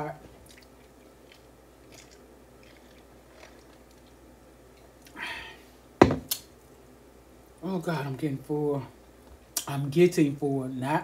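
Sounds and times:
short breath: 0:05.1 - 0:05.8
tumbler knocking on table: 0:06.0 - 0:06.3.

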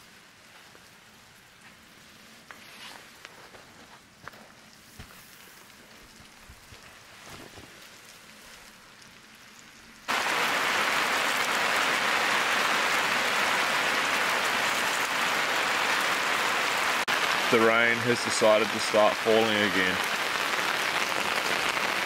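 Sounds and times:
heavy rain falling: 0:05.1 - 0:22.0.

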